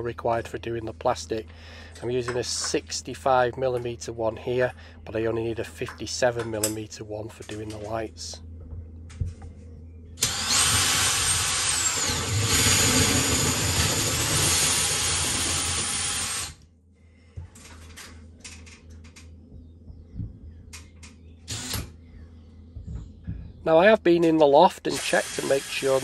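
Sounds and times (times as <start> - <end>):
drill whining through plasterboard: 10.2 - 16.6, 21.5 - 21.9, 24.9 - 26.0.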